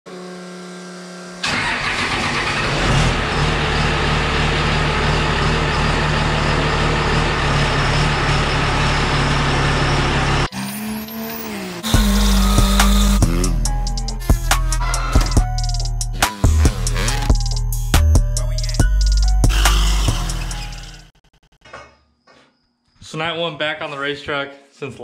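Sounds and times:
diesel truck engine running: 0:01.4 - 0:21.2
music: 0:11.9 - 0:21.1.

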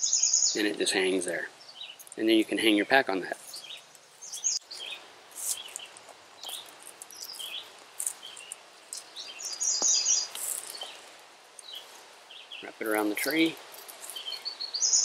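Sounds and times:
bird trill: 0:00.0 - 0:00.6, 0:03.4 - 0:11.0, 0:14.0 - 0:15.0
songbirds chirping: 0:00.0 - 0:15.0.

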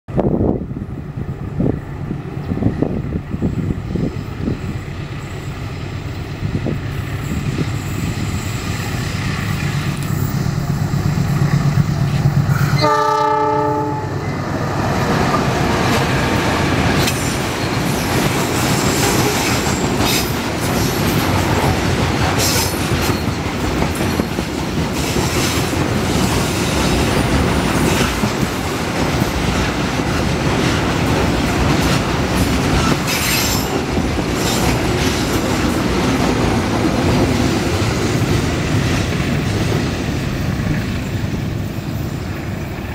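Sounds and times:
diesel locomotive engine rumbling: 0:00.1 - 0:42.9
train horn blast: 0:12.6 - 0:14.3
train wheels clattering over rail joints: 0:15.2 - 0:40.0.

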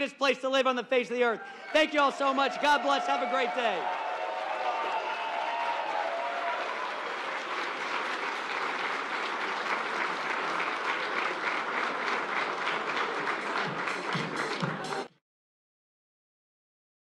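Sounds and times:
crowd clapping: 0:01.7 - 0:15.2.

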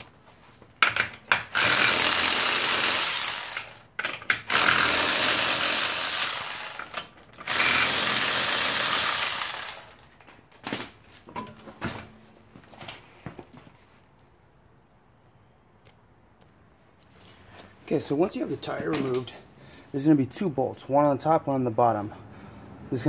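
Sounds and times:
power tool spinning off lug nuts: 0:00.8 - 0:10.1.

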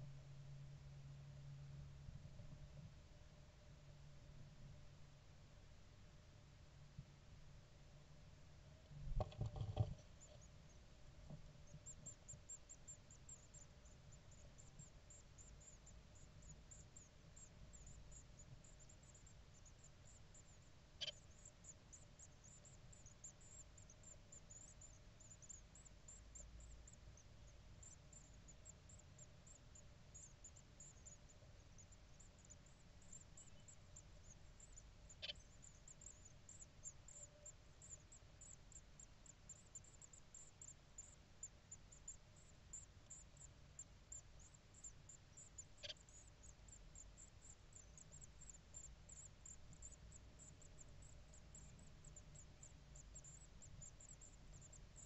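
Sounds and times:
low steady hum: 0:00.0 - 0:55.0
nestlings cheeping: 0:43.4 - 0:54.9.

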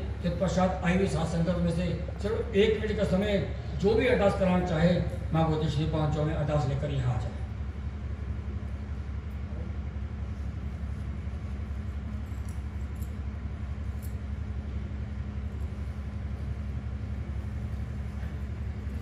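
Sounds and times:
low hum and rumble: 0:00.0 - 0:19.0.

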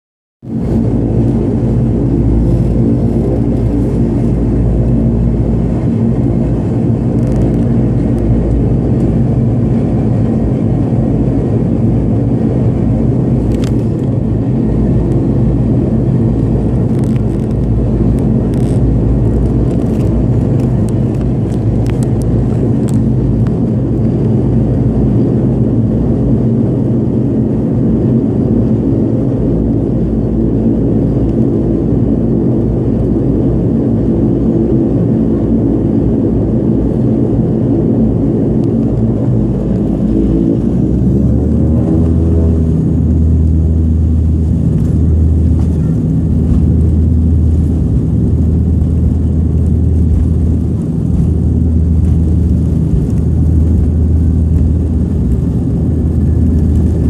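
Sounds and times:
turboprop engines humming: 0:00.4 - 0:57.0.

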